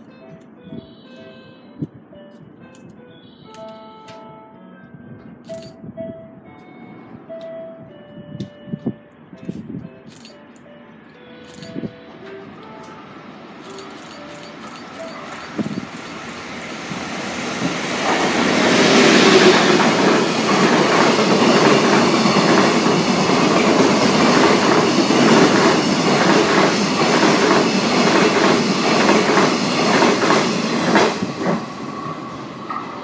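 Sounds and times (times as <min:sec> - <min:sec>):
locomotive rushing past: 0:11.5 - 0:33.0
train wheels clacking over rail joints: 0:13.6 - 0:16.2, 0:17.6 - 0:33.0.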